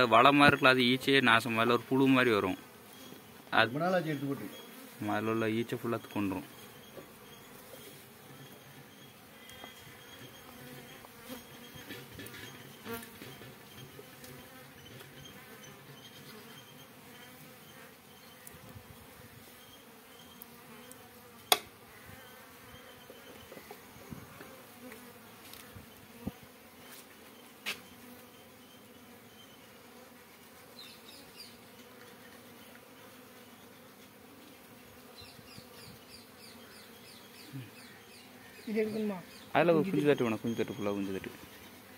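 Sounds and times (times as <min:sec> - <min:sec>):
honeybees buzzing: 0:00.0 - 0:41.9
sharp knocks: 0:21.5 - 0:21.7.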